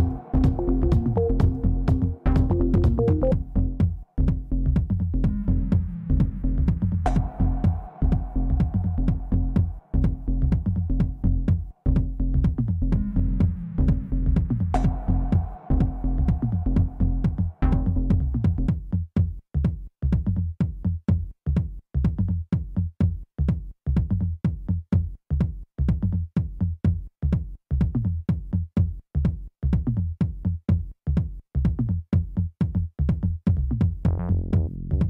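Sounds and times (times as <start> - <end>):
electronic music with heavy bass: 0.0 - 4.6, 12.9 - 18.5, 34.0 - 35.0.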